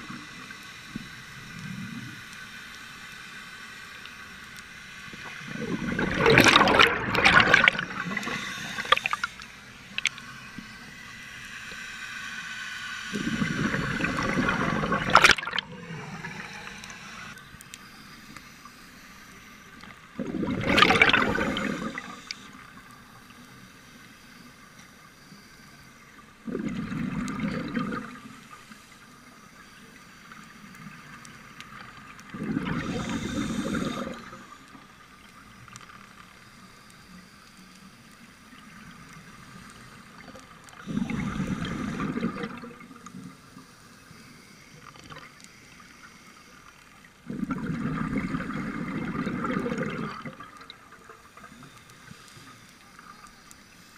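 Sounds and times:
diver's breath bubbling: 5.5 - 9.3, 20.2 - 22.2, 32.3 - 34.4, 47.3 - 50.4.

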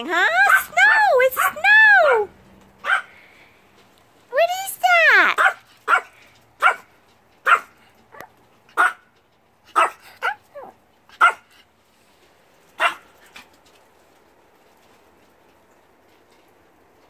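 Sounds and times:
small dog yapping: 0.4 - 3.1, 5.4 - 9.1, 9.7 - 11.5, 12.8 - 13.1.

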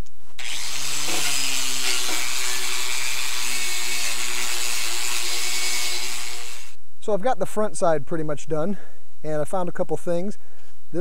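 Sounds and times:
wire brush scrubbing metal: 0.4 - 6.7
angle grinder motor whining: 0.4 - 6.8.

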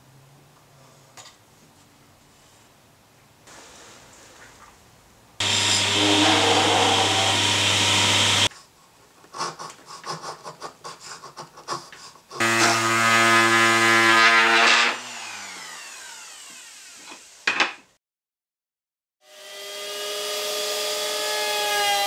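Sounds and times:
hand tool scraping wood: 5.4 - 8.5
table saw cutting wood: 5.4 - 8.5, 12.4 - 17.8, 19.2 - 22.0.

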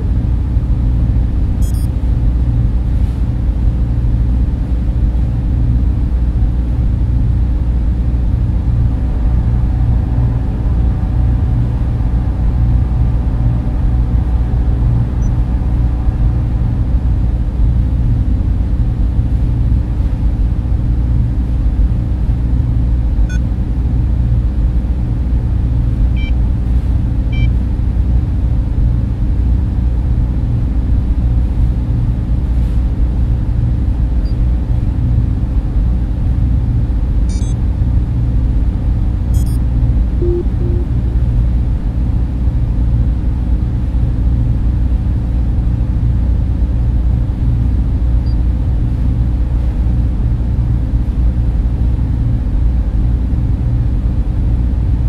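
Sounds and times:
server machines and fans droning: 0.0 - 55.0
brief electronic beeps: 1.6 - 1.9, 37.3 - 37.6, 39.4 - 39.6, 40.2 - 41.0.

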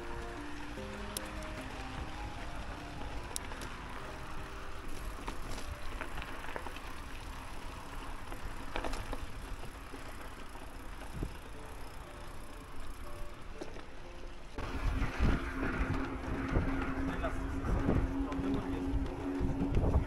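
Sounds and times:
bike clicks and knocks: 0.0 - 20.0
tyre rumble: 14.6 - 20.0
wind rush on microphone: 14.6 - 20.0.

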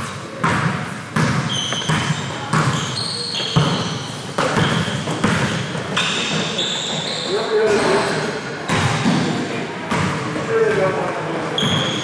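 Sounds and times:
basketball bouncing on gym floor: 0.4 - 7.9, 8.6 - 10.9, 11.6 - 12.0
sneakers squeaking on court: 0.4 - 9.3, 11.4 - 12.0.

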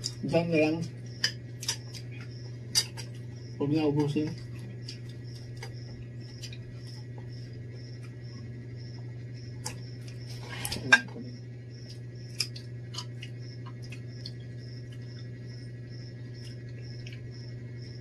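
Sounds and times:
insect chirping: 0.0 - 18.0
steady low hum: 0.0 - 18.0.

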